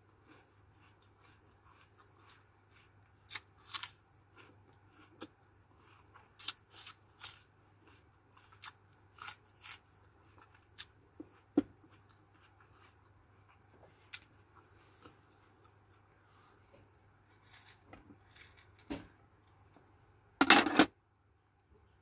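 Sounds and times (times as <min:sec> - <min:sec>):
mouth chewing crisp fruit: 0:00.0 - 0:16.5.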